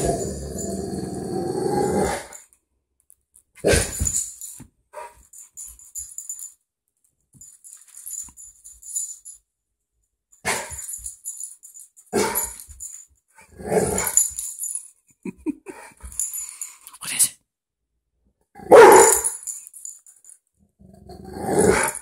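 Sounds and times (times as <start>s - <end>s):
puppy barking: 18.7s - 19.3s.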